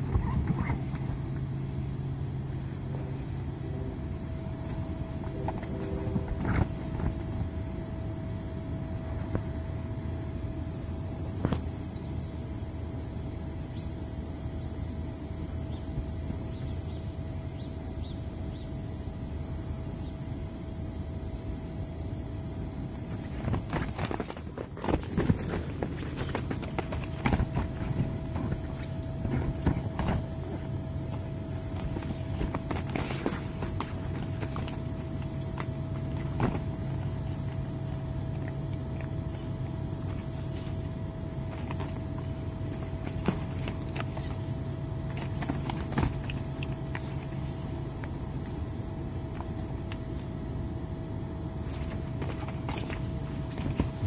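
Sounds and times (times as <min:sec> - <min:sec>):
puppy paws thudding on vinyl: 0:00.0 - 0:01.5, 0:04.6 - 0:07.7, 0:23.1 - 0:37.6, 0:45.0 - 0:48.7, 0:51.6 - 0:54.0.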